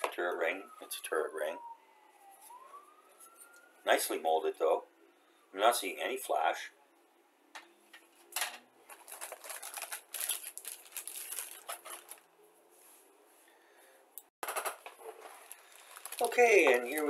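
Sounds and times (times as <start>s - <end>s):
plastic bags crinkling: 8.8s - 12.3s, 14.8s - 17.0s.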